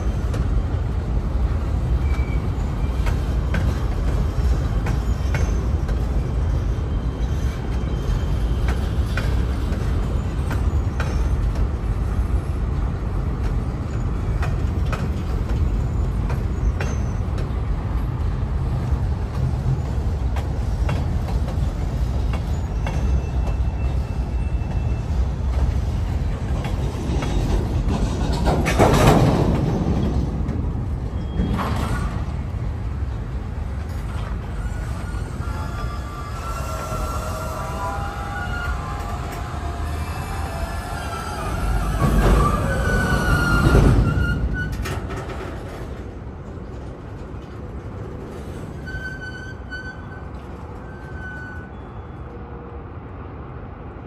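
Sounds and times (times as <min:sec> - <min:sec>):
train wheels rumbling on rails: 0:00.0 - 0:54.0
faint wheel squeal: 0:02.0 - 0:11.6, 0:22.3 - 0:25.3, 0:31.1 - 0:32.1, 0:33.9 - 0:45.2, 0:48.4 - 0:52.4.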